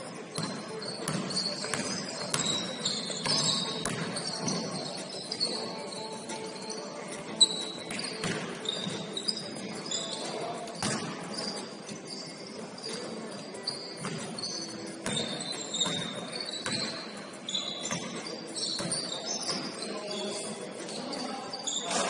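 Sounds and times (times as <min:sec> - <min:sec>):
sneaker squeaks: 0:00.0 - 0:22.0
basketball bouncing on hardwood floor: 0:00.4 - 0:02.6, 0:03.2 - 0:04.6
players' voices: 0:18.2 - 0:22.0.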